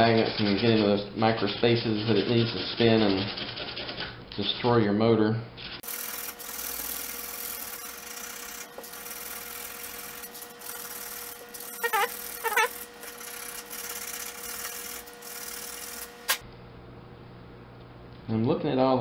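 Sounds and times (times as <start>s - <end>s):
sandpaper rubbing on metal: 0.0s - 4.0s, 5.6s - 16.3s
short squeaks: 11.6s - 12.8s.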